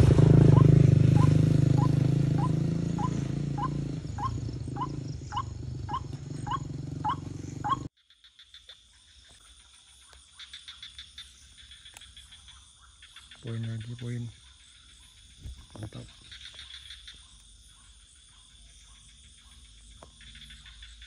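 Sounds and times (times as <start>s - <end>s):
crickets chirring: 0.2s - 21.0s
short rising bird calls: 0.5s - 7.9s.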